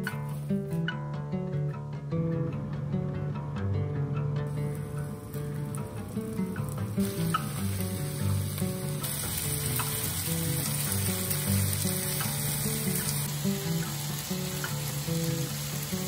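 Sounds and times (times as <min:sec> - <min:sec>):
background music: 0:00.0 - 0:16.0
food sizzling in a pan: 0:04.5 - 0:16.0.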